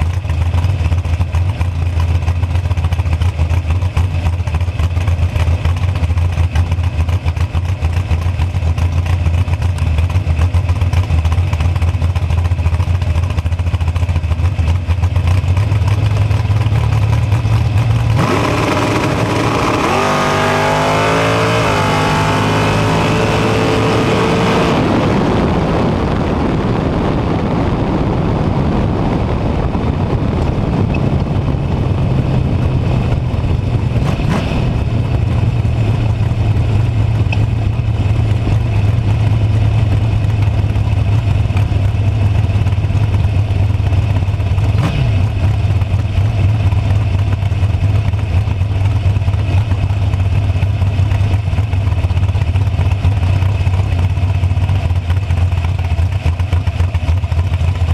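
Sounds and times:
dragster engine running: 0:00.0 - 0:57.9
rushing wind noise: 0:17.4 - 0:48.0.

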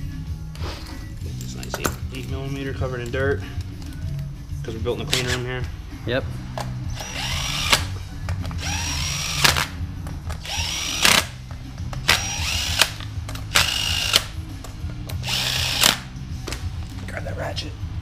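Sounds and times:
cordless drill whining: 0:07.0 - 0:07.9, 0:08.6 - 0:09.7, 0:10.4 - 0:11.3, 0:12.0 - 0:14.3, 0:15.2 - 0:16.0.

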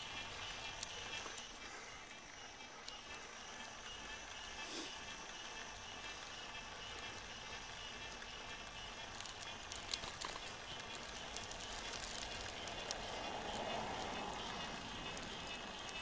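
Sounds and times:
bicycle tyres rolling on asphalt: 0:00.0 - 0:16.0
bike metallic rattles and clicks: 0:00.0 - 0:16.0.

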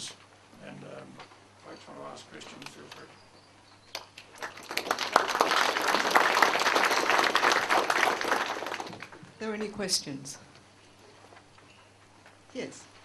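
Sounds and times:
audience applauding: 0:04.0 - 0:09.2.

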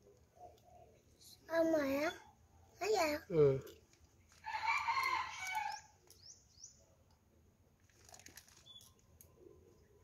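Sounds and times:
rooster crowing: 0:04.4 - 0:05.9.

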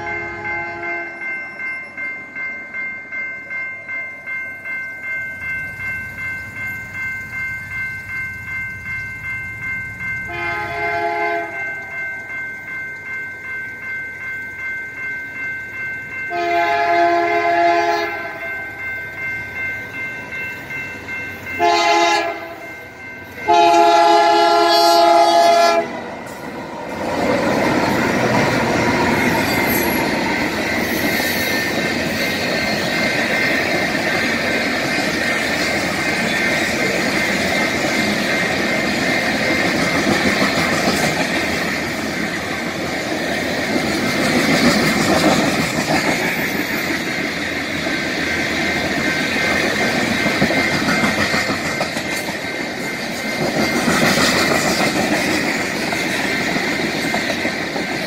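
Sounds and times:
diesel locomotive passing: 0:00.0 - 0:58.0
train wheels rumbling over rails: 0:15.7 - 0:58.0
high-pitched wheel squeal: 0:29.0 - 0:32.4.

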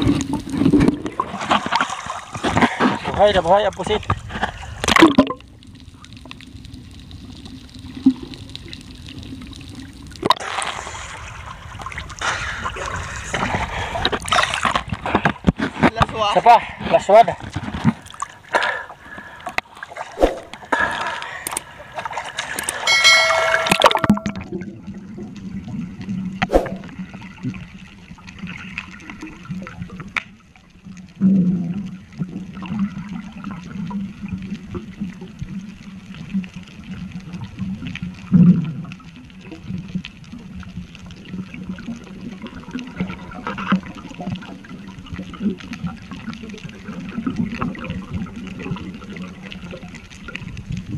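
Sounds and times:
underwater low hum: 0:00.0 - 0:03.2, 0:03.8 - 0:15.9, 0:16.6 - 0:50.9
underwater rushing and bubbling: 0:00.0 - 0:50.9
underwater surges and knocks: 0:00.0 - 0:50.9
surface water splashing: 0:17.5 - 0:24.8, 0:26.4 - 0:27.1.

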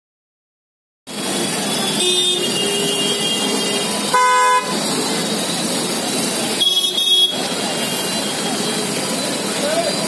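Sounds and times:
busy street noise: 0:01.1 - 0:10.0
vehicle horn toot: 0:01.6 - 0:04.8, 0:06.6 - 0:08.8.

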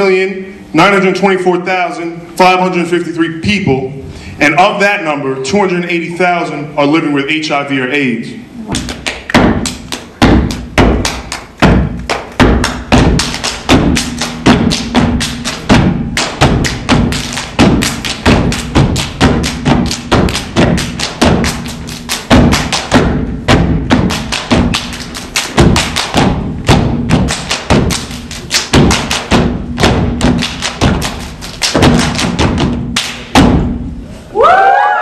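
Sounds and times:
hand claps: 0:08.7 - 0:33.4
rhythmic stomps: 0:08.7 - 0:34.1
crowd whooping shout: 0:34.3 - 0:35.0.

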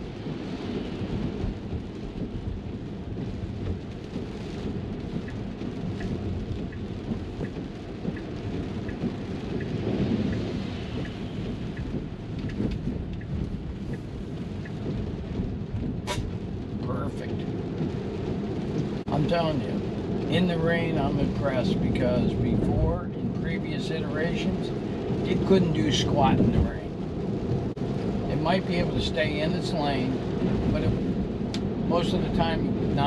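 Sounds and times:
rain drumming on car roof: 0:00.0 - 0:33.0
tyres rumbling on wet road: 0:00.0 - 0:33.0
turn signal ticking: 0:00.2 - 0:16.8, 0:30.1 - 0:33.0.

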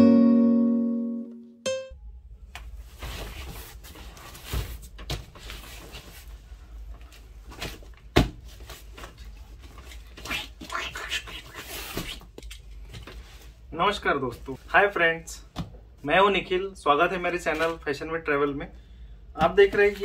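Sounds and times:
cardboard parcel scraping and rustling: 0:02.9 - 0:10.3.

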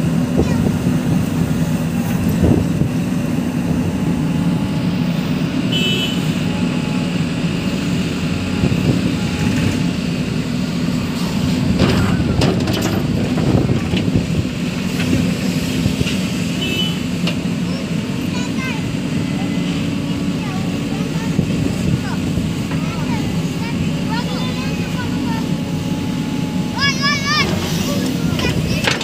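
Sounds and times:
diesel engine running: 0:00.0 - 0:29.0
knocks and clatters: 0:11.8 - 0:14.2, 0:28.4 - 0:29.0.

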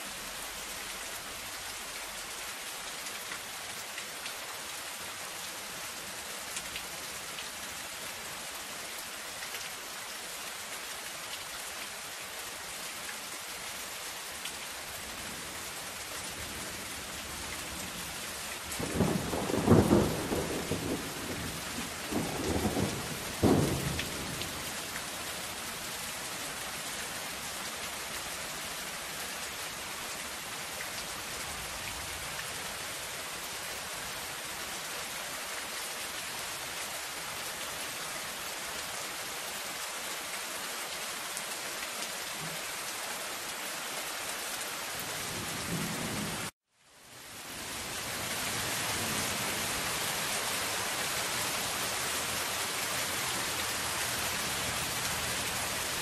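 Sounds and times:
rain on a metal roof: 0:00.0 - 0:56.0
thunder rumbling: 0:18.8 - 0:24.4.

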